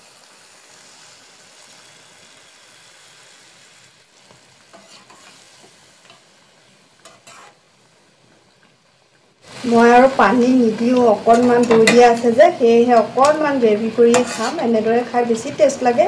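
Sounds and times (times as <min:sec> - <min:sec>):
curry sizzling in a frying pan: 0:00.0 - 0:16.0
spatula scraping a pan: 0:04.7 - 0:06.3, 0:07.0 - 0:07.6, 0:09.6 - 0:12.4, 0:13.0 - 0:14.8.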